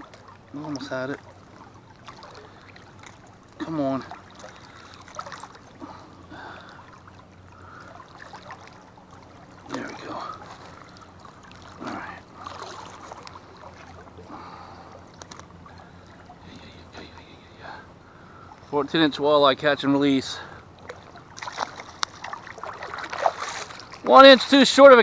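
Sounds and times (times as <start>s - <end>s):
steady low hum: 0.0s - 25.0s
water sloshing and splashing: 0.0s - 25.0s
loud splashes: 9.6s - 14.4s, 20.8s - 24.1s.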